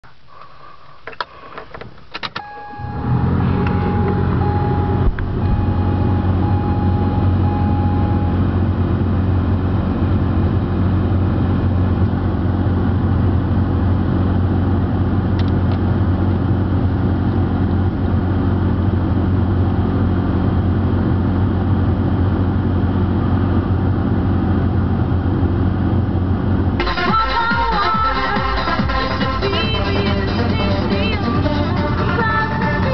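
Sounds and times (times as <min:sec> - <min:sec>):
car engine starting and idling: 0:00.9 - 0:32.9
dashboard warning chime beeping: 0:02.4 - 0:08.4.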